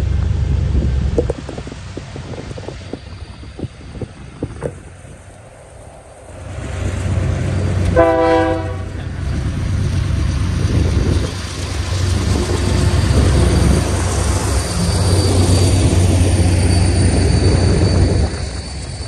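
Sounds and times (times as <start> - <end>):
diesel locomotive rumble: 0.0 - 19.0
container cars rolling: 8.9 - 19.0.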